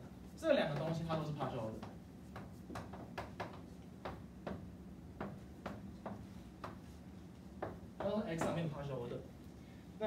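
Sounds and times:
chalk tapping on blackboard: 0.6 - 8.6.

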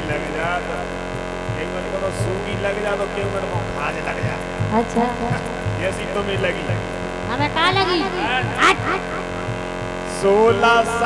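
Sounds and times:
harmonium: 0.0 - 11.0
loud mains hum: 0.0 - 11.0
low repeating pulse: 0.0 - 11.0
man singing: 7.8 - 9.3, 10.1 - 11.0.

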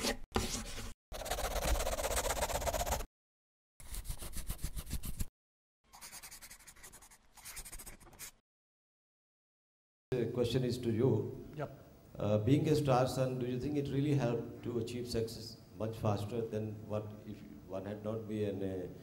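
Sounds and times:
pencil scribbling on paper: 0.0 - 3.1, 3.8 - 5.3, 5.9 - 8.4.

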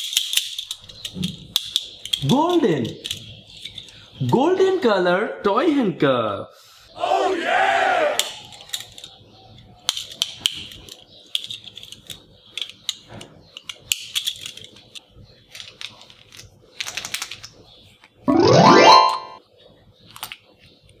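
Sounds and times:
toy handcuffs ratchet clicking: 0.0 - 4.0, 8.2 - 9.2, 9.8 - 17.5.

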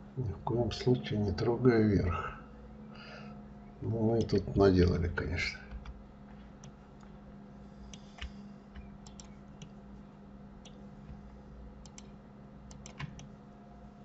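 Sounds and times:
low electrical hum: 0.0 - 14.0
mouse and keyboard clicks: 7.9 - 9.7, 11.8 - 12.1, 12.7 - 13.3.

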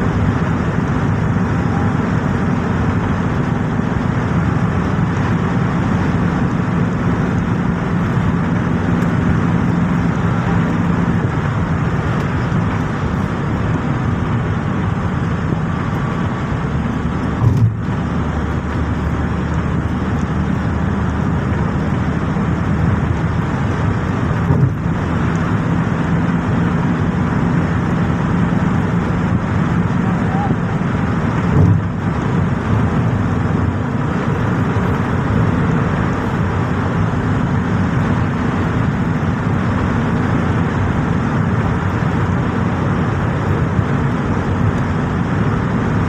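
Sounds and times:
car engine and road rumble: 0.0 - 46.0
low thumps: 17.3 - 18.1, 31.4 - 32.3.

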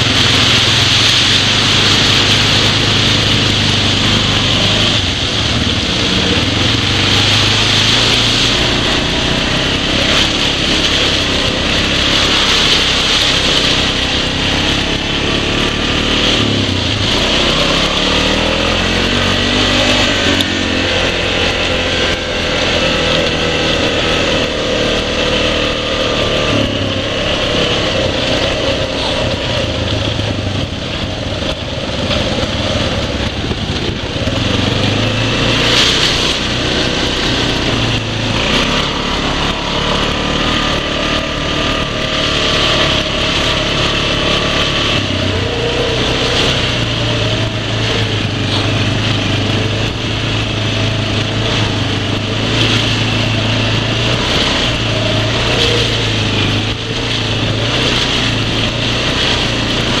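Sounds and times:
quad bike engine running: 0.0 - 60.0
ride noise: 0.0 - 60.0.

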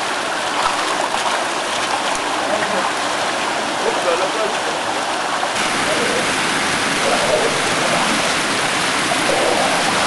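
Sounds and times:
water rushing down street: 0.0 - 10.0.

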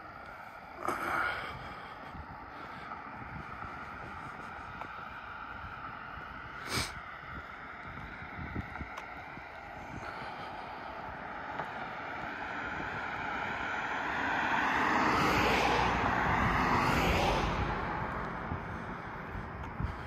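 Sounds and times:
vehicle driving past: 11.2 - 20.0.

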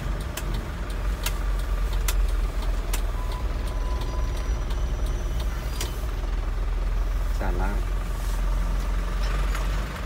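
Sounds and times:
turn signal relay clicking: 0.0 - 6.0
truck engine running: 0.0 - 10.0.

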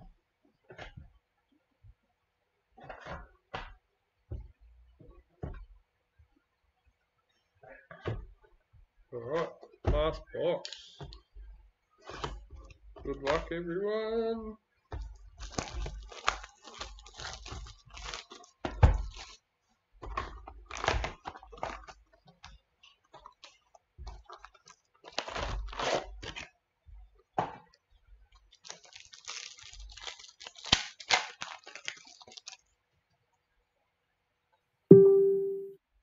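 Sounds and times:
plastic and foil wrapping tearing: 15.4 - 19.4, 20.0 - 22.0, 23.0 - 26.6, 28.4 - 32.8
short loud tone: 34.9 - 35.8.

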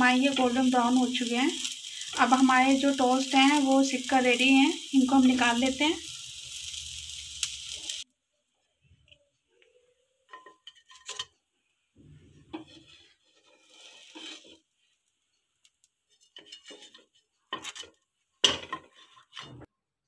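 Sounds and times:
wooden spatula scraping and knocking on pan: 12.0 - 15.4, 16.0 - 19.7.

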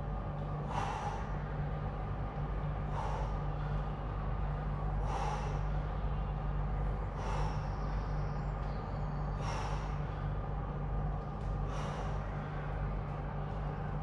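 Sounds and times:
steady low hum: 0.0 - 14.0
forceful exhaling breaths: 0.6 - 1.5, 2.8 - 3.9, 4.9 - 6.0, 7.1 - 7.9, 9.4 - 10.4, 11.6 - 12.7.

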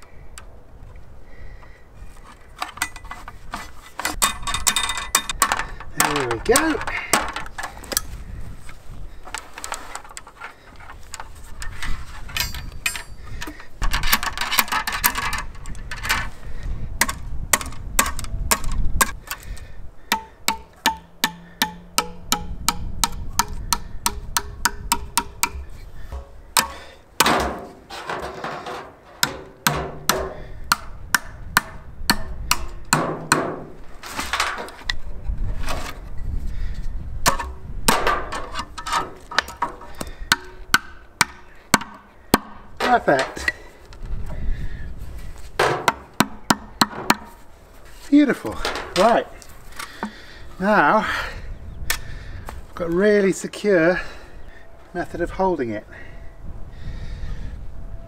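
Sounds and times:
wooden mallet knocking on log: 20.1 - 25.6, 45.6 - 47.3.

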